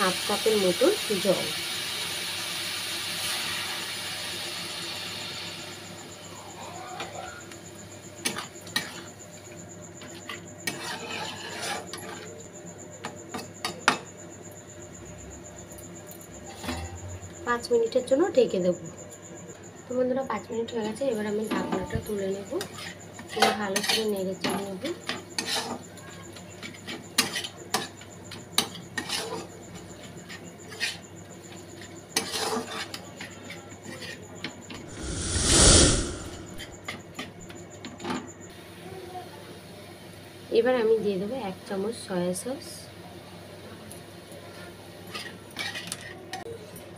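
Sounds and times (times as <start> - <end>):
rush of noise: 34.9 - 36.8.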